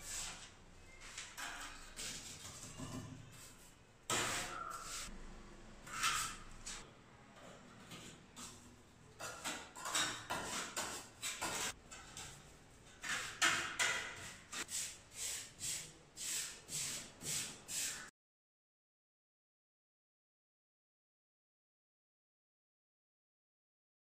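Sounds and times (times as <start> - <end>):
trowel scraping wet mortar: 9.2 - 12.3.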